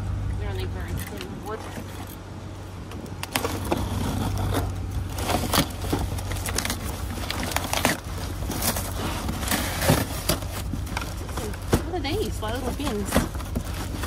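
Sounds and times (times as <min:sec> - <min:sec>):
knocks of items shifted: 0:02.9 - 0:14.0
rustling and crinkling packaging: 0:03.2 - 0:14.0.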